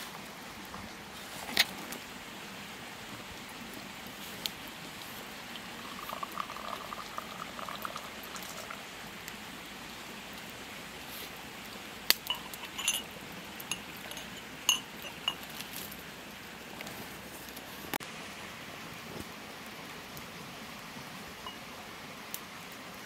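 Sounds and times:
liquid bubbling: 5.3s - 9.0s
kitchenware clinking: 12.3s - 13.1s, 13.7s - 15.5s.

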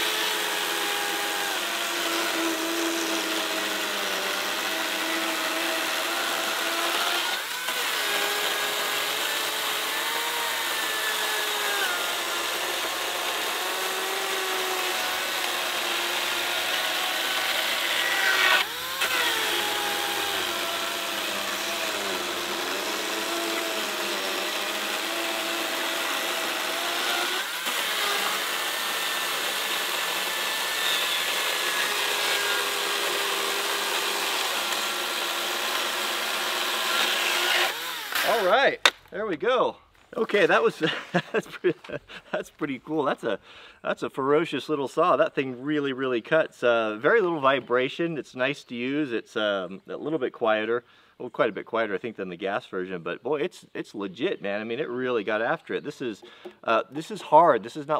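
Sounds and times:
electric chainsaw cutting log: 0.0s - 38.6s.

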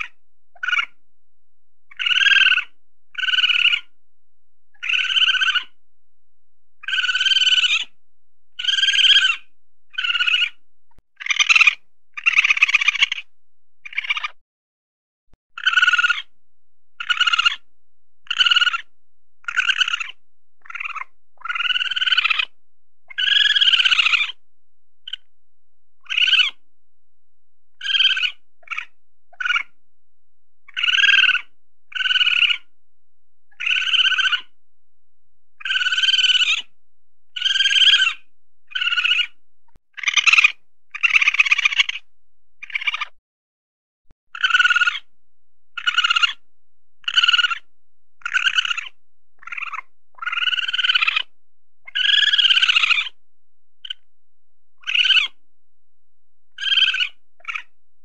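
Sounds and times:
weasel high-pitched calls: 0.0s - 1.0s, 1.9s - 4.0s, 4.8s - 5.8s, 6.8s - 8.0s, 8.6s - 10.6s, 11.2s - 14.4s, 15.6s - 16.4s, 17.0s - 24.4s, 25.1s - 25.3s, 26.0s - 26.6s, 27.7s - 29.8s, 30.7s - 32.7s, 33.5s - 34.6s, 35.6s - 36.7s, 37.3s - 43.2s, 44.4s - 45.1s, 45.7s - 46.4s, 47.0s - 53.2s, 53.8s - 54.1s, 54.8s - 55.4s, 56.5s - 57.8s.

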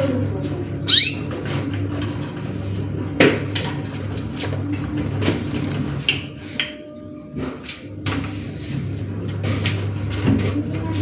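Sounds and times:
finch chirp: 0.9s - 1.4s.

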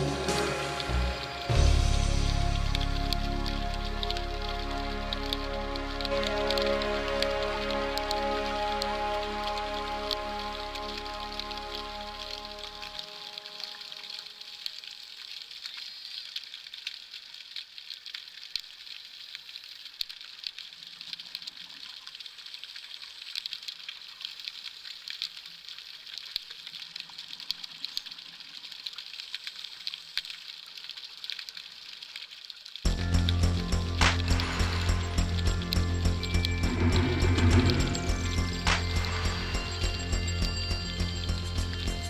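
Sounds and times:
underwater fizzing crackle: 0.0s - 42.0s.

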